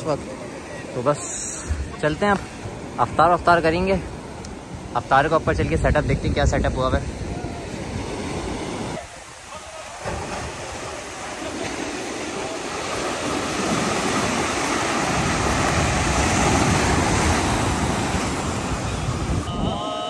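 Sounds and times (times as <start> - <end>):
sea surf washing onto beach: 0.0 - 20.0
wind on microphone: 3.8 - 9.2, 12.8 - 20.0.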